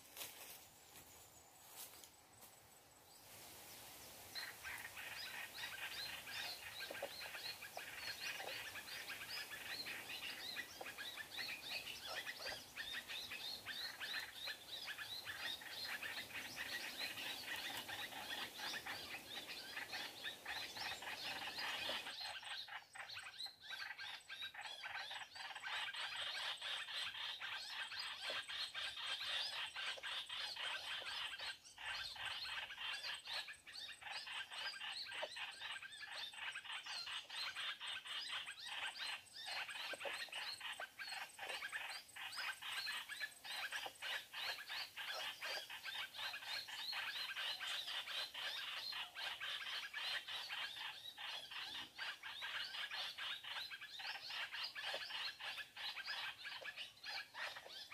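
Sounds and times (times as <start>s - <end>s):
low background hiss: 0.0s - 22.3s
songbirds chirping: 0.0s - 57.9s.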